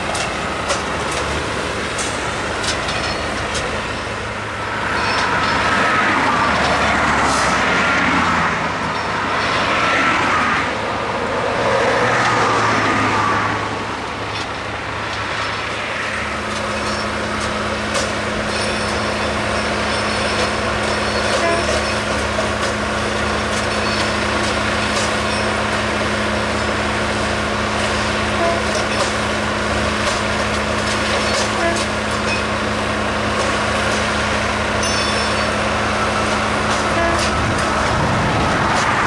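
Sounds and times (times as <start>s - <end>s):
sharp metallic clanks: 0.0s - 4.1s, 4.8s - 5.8s, 16.5s - 22.8s, 34.8s - 38.0s
diesel engine hum: 0.0s - 39.0s.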